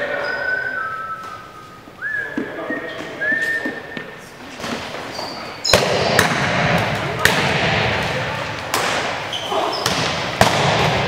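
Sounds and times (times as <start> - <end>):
sneakers squeaking on gym floor: 0.0 - 6.3, 8.9 - 10.7
dodgeball hitting: 5.6 - 11.0.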